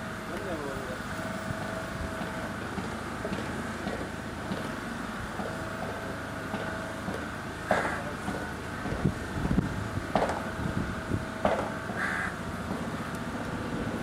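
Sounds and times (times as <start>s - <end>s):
thin held whine: 0.0s - 14.0s
traffic and engine hum: 0.0s - 14.0s.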